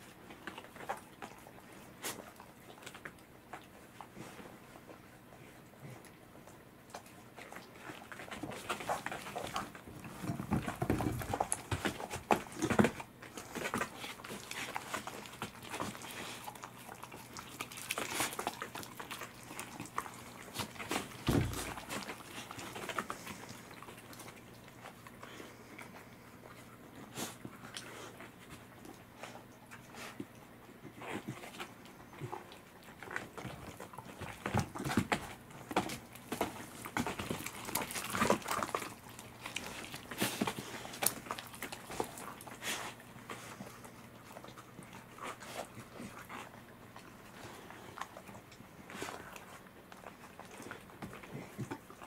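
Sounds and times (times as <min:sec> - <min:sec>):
animals chewing and crunching fish: 0:00.0 - 0:52.0
dull thump: 0:21.3 - 0:21.8.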